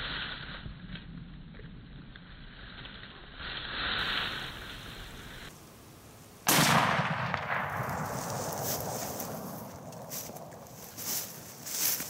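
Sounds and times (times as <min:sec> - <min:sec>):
rifle shot with echo: 0:06.4 - 0:10.7.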